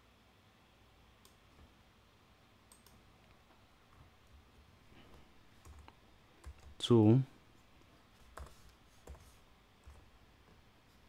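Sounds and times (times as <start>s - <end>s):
faint computer mouse clicks: 1.2s - 1.4s, 2.7s - 3.0s.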